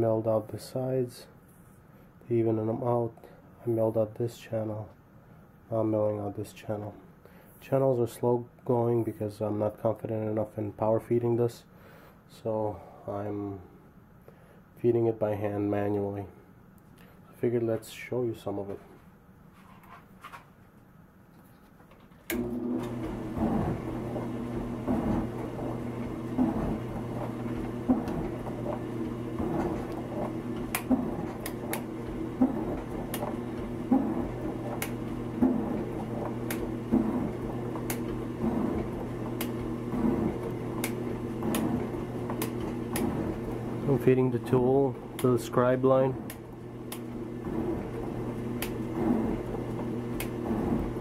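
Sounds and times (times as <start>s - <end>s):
lathe running with a hum: 22.3s - 51.0s.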